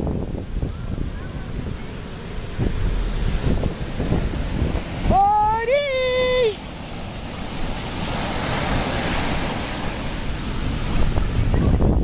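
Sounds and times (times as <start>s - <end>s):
ocean surf on beach: 0.0s - 12.0s
wind buffeting microphone: 0.0s - 12.0s.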